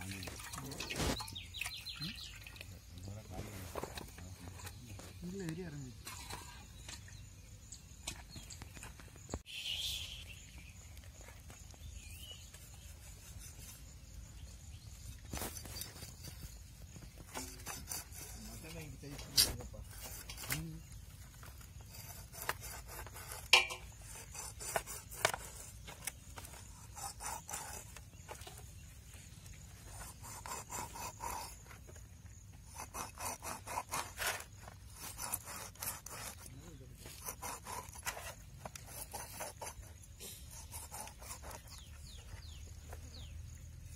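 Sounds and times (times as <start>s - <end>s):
knife scraping fish scales: 15.3s - 28.7s, 29.8s - 31.8s, 32.6s - 42.5s.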